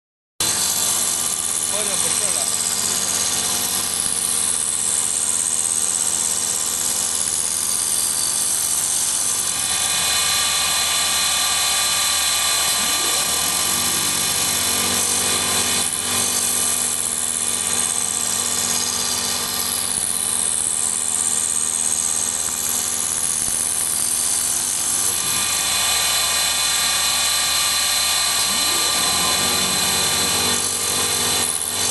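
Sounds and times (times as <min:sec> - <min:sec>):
machine motors humming and whining: 0:00.4 - 0:06.8, 0:07.4 - 0:31.9.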